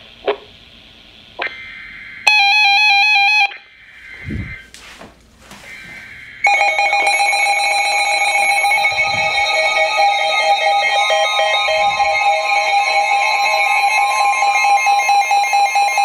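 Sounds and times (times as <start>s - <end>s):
warbling radio alarm: 1.4s - 4.7s, 5.7s - 16.0s
overlapping alarm beeps: 5.7s - 16.0s.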